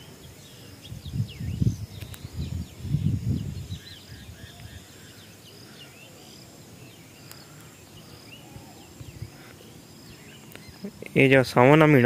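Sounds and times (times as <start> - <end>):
low wind rumble: 0.0 - 5.7, 7.8 - 11.6
birds chirping: 0.0 - 12.0.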